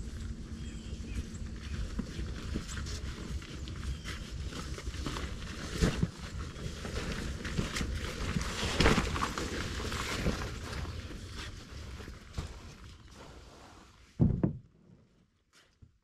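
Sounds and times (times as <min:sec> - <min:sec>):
rustling of carried gear: 0:00.0 - 0:14.2
loud knocks: 0:14.2 - 0:14.7.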